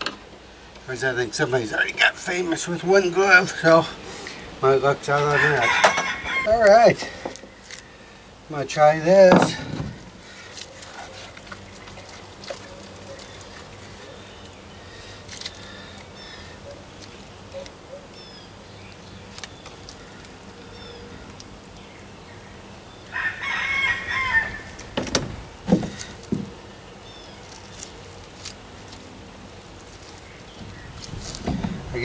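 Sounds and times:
rooster crowing: 5.2 - 6.6, 23.1 - 25.0.

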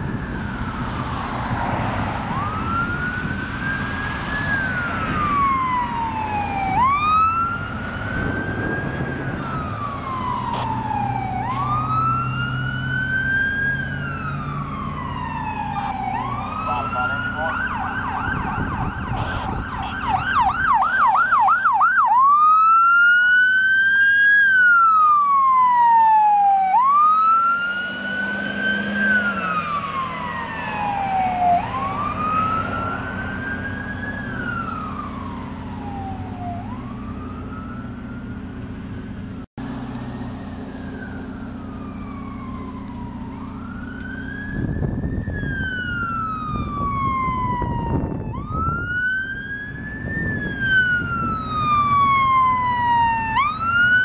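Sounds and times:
second emergency siren wailing: 0.0 - 39.0, 39.8 - 54.0
ambulance siren yelp and wail: 0.0 - 54.0
vehicle engine rumble: 0.0 - 54.0.

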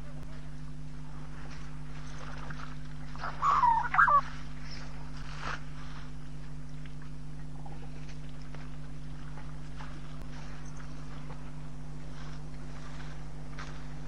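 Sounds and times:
low electrical hum: 0.0 - 14.0
bird calls: 3.2 - 4.9.

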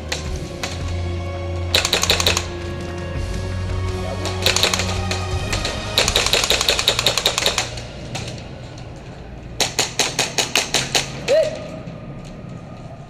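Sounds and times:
airsoft gun full-auto bursts: 1.7 - 2.6, 4.2 - 7.8.

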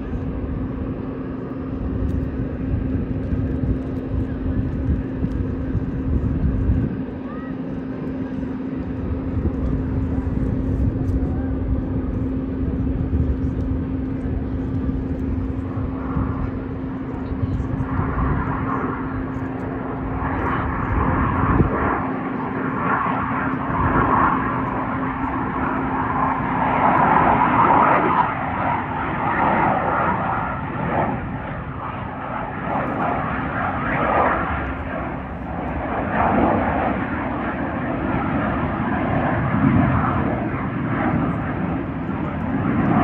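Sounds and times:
fighter jet engines roaring: 0.0 - 43.0
steady low hum: 0.0 - 43.0.

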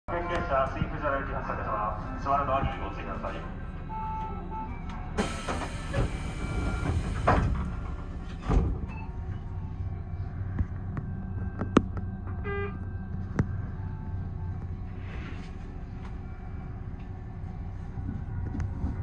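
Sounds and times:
train low hum: 0.1 - 19.0
train doors hissing: 5.2 - 8.8
train doors thumping shut: 5.2 - 9.2.

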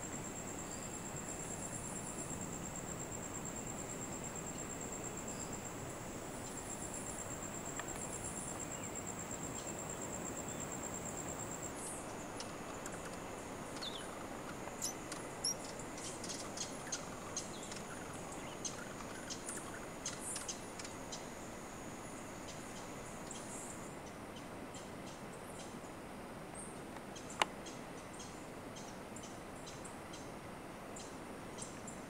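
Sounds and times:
high insect trill: 0.0 - 24.0
soft background hiss: 0.0 - 32.0
small birds chirping: 6.4 - 21.3.

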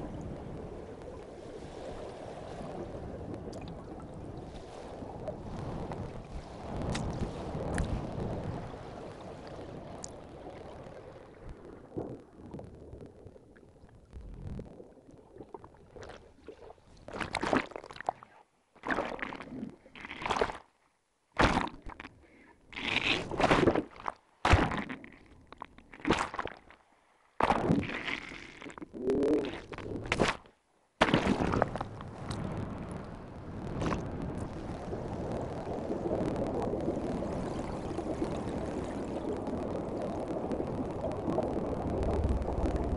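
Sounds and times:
underwater rushing water: 0.0 - 17.5, 31.0 - 42.9
underwater bubble bursts: 0.0 - 20.4, 33.7 - 42.9.

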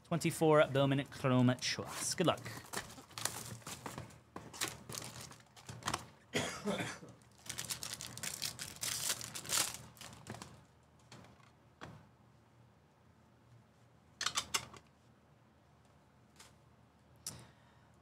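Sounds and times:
plastic wrapper tearing and crinkling: 2.8 - 3.8, 4.6 - 5.9, 7.2 - 10.6.

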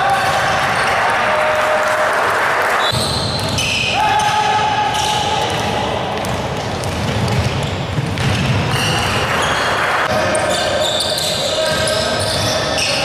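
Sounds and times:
sneakers squeaking: 2.8 - 13.0
basketball bouncing on hardwood: 6.2 - 8.6.

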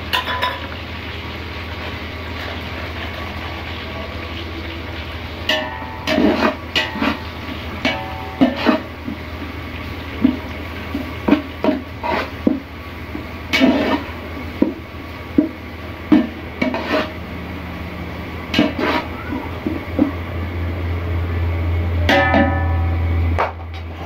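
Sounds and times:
low steady hum: 0.0 - 24.0
metal spatula scraping a pot: 5.5 - 8.9, 11.3 - 12.4, 13.5 - 14.2, 16.1 - 17.2, 18.5 - 19.1.

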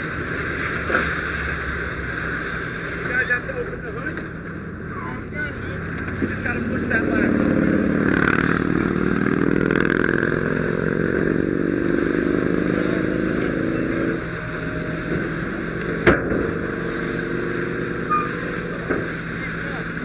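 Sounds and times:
engine running steadily: 0.0 - 20.0.

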